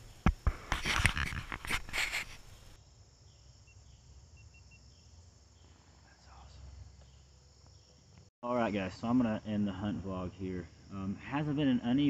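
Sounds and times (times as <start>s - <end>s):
rustle: 0.0s - 7.2s
crickets and insects chorus: 0.2s - 12.0s.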